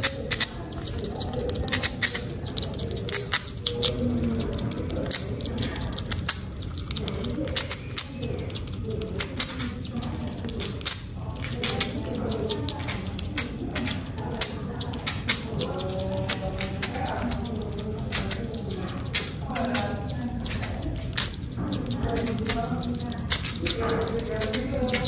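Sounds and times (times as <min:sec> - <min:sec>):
low background hum: 0:00.0 - 0:25.0
squirrel gnawing food: 0:00.0 - 0:25.0.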